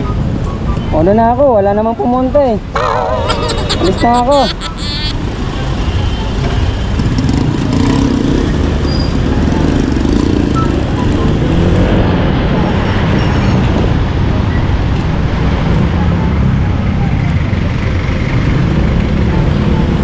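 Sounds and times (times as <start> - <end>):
road and traffic noise: 0.0 - 20.0
vehicles passing close by: 4.6 - 20.0.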